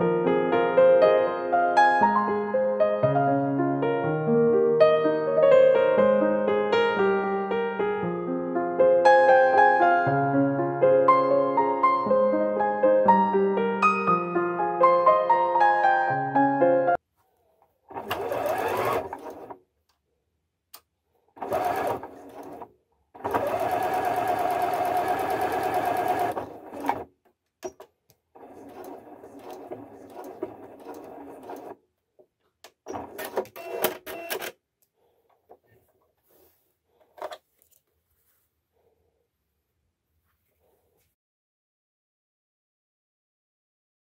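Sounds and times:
sewing machine stitching: 17.9 - 19.6, 21.4 - 27.8, 28.4 - 31.8, 32.8 - 34.5.

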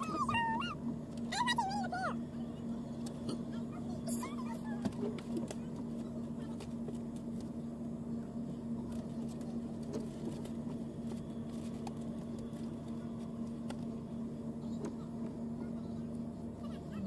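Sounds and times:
vehicle engine idling: 0.0 - 17.0.

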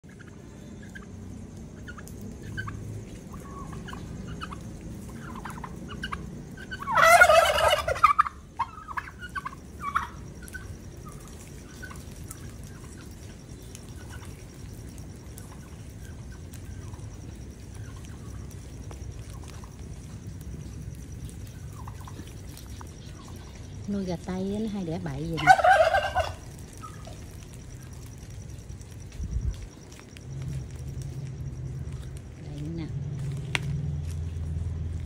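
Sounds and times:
flock of turkeys calling: 0.0 - 20.2, 20.9 - 24.1, 25.1 - 31.0
turkey gobbling: 0.1 - 1.1, 1.8 - 13.1, 13.9 - 14.4, 15.4 - 17.1, 17.7 - 20.1, 21.6 - 23.6, 25.3 - 28.0.

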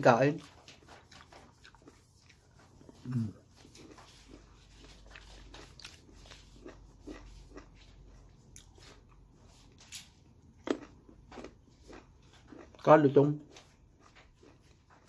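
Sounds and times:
chewing crunchy fruit: 0.0 - 15.0
loud crunch of a bite: 9.8 - 12.9.

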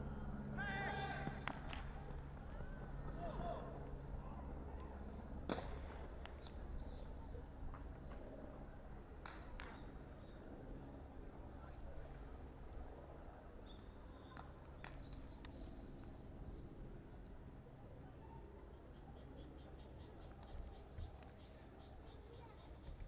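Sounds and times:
low steady rumble: 0.0 - 21.0
baseballs being hit or caught: 1.1 - 2.2, 5.4 - 6.6, 9.2 - 9.9.

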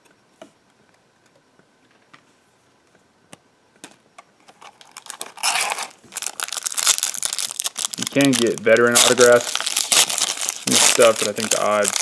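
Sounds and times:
foil wrapper crinkling: 4.6 - 12.0.

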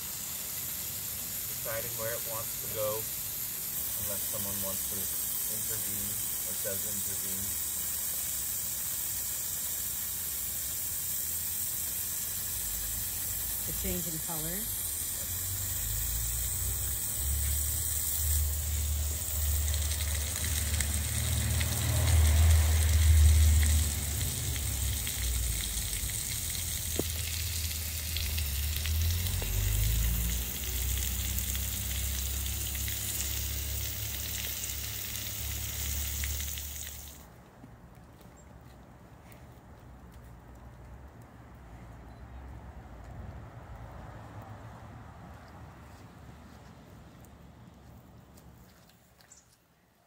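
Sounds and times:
hose spray on paving stones: 0.0 - 37.4.

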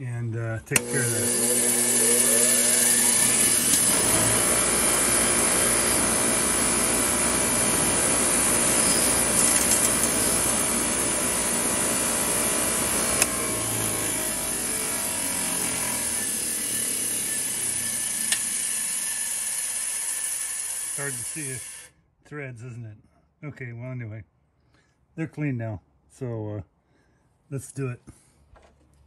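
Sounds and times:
bench grinder grinding metal: 0.7 - 21.9.

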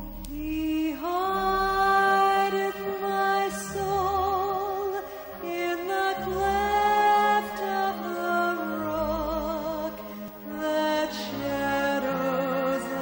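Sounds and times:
sustained backing chords: 0.0 - 13.0
woman singing slow song: 0.0 - 13.0.

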